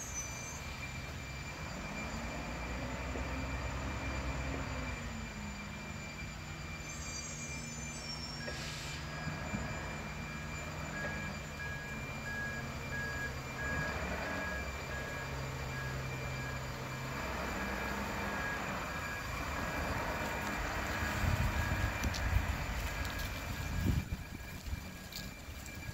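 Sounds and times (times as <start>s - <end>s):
garbage truck diesel engine: 0.0s - 25.9s
high squeal: 0.0s - 25.9s
reversing alarm beeping: 0.0s - 25.9s.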